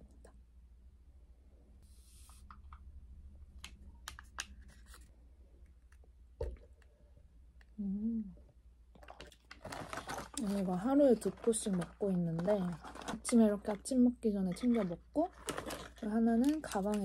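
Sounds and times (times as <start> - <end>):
person humming: 7.8 - 8.4
plastic sachet rustling and clicking: 9.2 - 13.9, 14.5 - 17.0.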